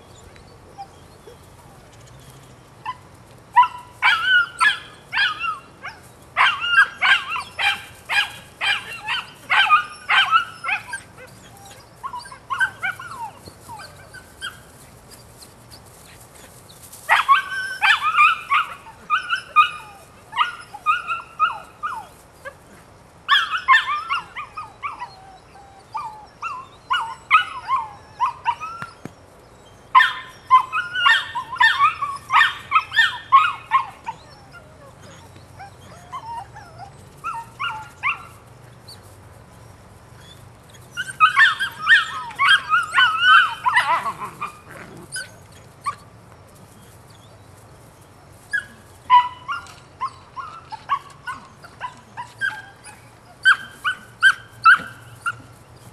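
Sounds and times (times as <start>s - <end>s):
puppy yapping: 3.6s - 14.6s, 40.8s - 46.0s, 48.5s - 55.5s.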